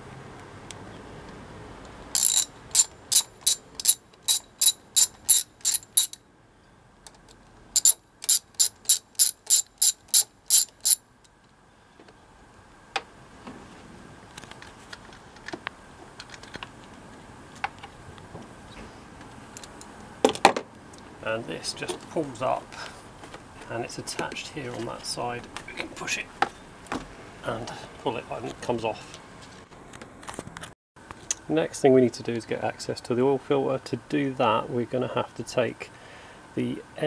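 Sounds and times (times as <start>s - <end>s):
socket ratchet clicking: 2.2s - 6.2s, 7.8s - 11.0s.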